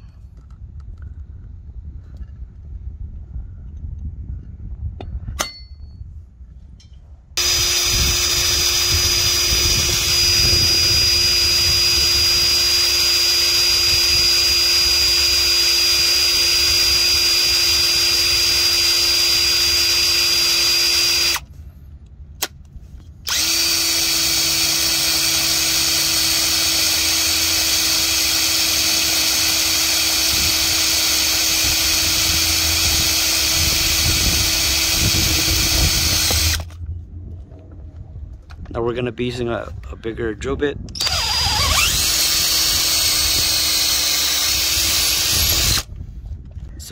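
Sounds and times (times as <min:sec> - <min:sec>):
power drill drilling into steel: 0:07.4 - 0:21.4, 0:23.3 - 0:36.8, 0:41.0 - 0:45.9.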